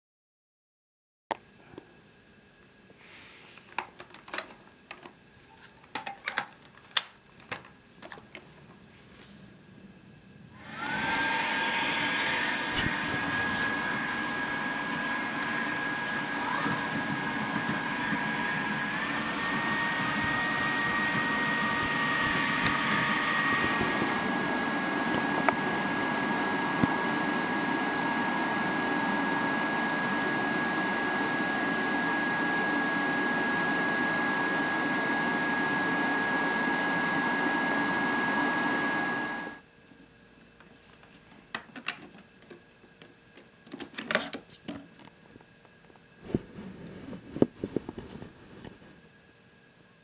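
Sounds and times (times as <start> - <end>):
plastic parts clicking and knocking: 3.8 - 5.2, 5.8 - 8.5, 41.0 - 45.2
vacuum cleaner high whine: 9.2 - 41.3.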